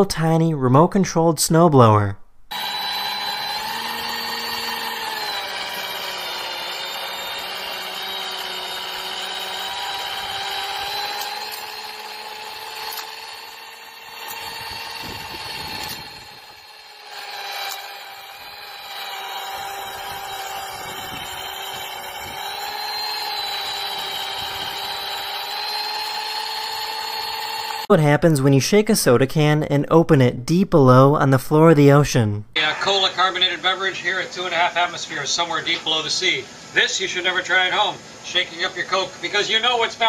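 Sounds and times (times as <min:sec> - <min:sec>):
small electric motor whining: 0:02.5 - 0:27.9.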